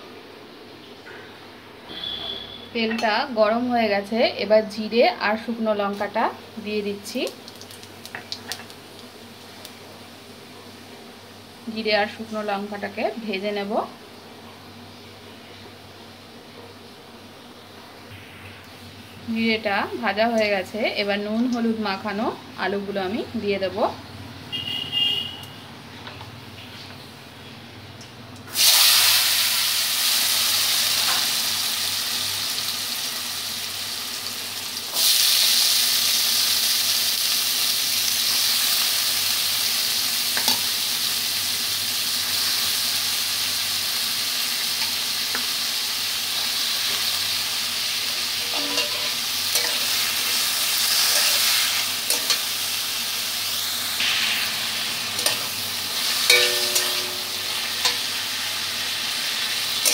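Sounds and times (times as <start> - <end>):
potatoes sizzling in hot oil: 2.8 - 13.9, 28.5 - 59.9
metal spatula scraping: 48.4 - 50.1, 50.9 - 52.4.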